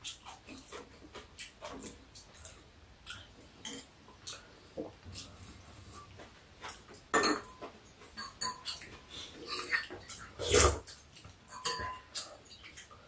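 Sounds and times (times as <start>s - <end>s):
chewing and slurping: 0.0s - 7.0s, 8.0s - 13.0s
utensils clicking against bowls: 10.8s - 12.9s.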